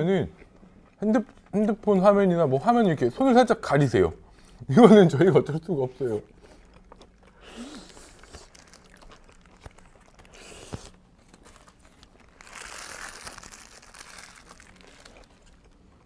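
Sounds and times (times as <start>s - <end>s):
paper wrapping crinkling: 6.8s - 16.0s.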